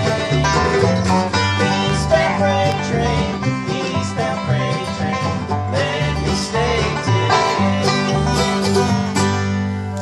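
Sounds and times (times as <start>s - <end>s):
plucked upright bass: 0.0s - 10.0s
strummed acoustic guitars: 0.0s - 10.0s.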